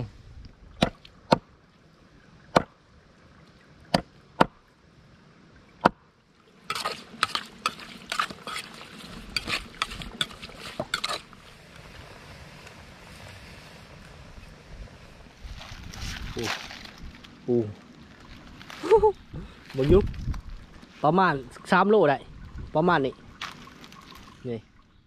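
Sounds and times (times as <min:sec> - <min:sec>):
pot boiling hiss: 0:06.4 - 0:24.6
spoon scraping a metal pot: 0:06.7 - 0:11.3.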